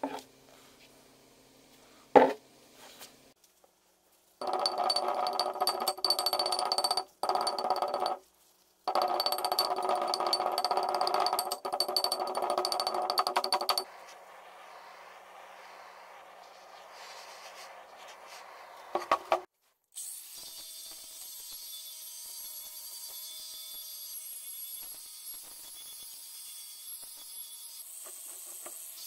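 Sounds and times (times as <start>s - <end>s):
chipping hammer tapping metal: 4.4s - 8.2s, 8.9s - 13.8s
metal disc ringing: 4.4s - 8.2s, 8.9s - 13.8s.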